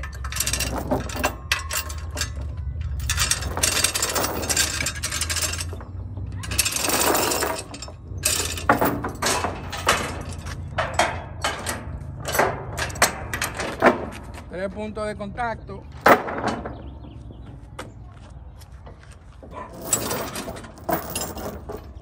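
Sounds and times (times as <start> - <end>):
metal chain rattling: 0.0 - 14.4, 19.5 - 22.0.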